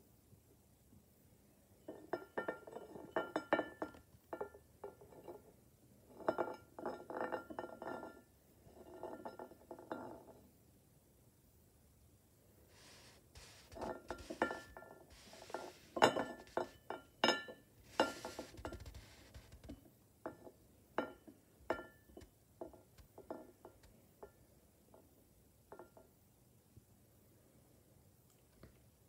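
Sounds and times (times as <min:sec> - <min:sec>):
ceramic bowl scraping on plate: 0:12.7 - 0:19.7.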